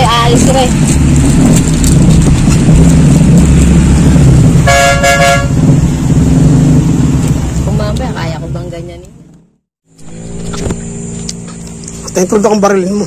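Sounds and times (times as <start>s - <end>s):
vehicle engine rumbling: 0.0s - 13.0s
vehicle horn: 4.6s - 5.6s.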